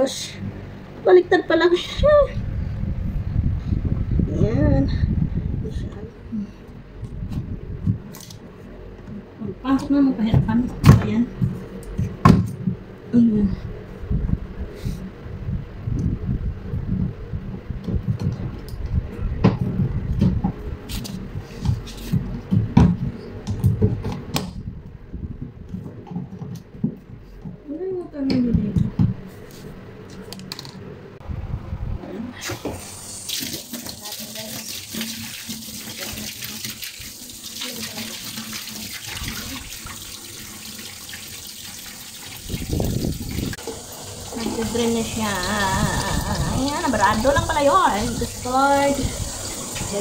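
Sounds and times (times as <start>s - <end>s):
low rumble: 0.0s - 8.1s, 12.8s - 21.5s, 31.1s - 32.4s
water draining onto tiled floor: 32.8s - 50.0s.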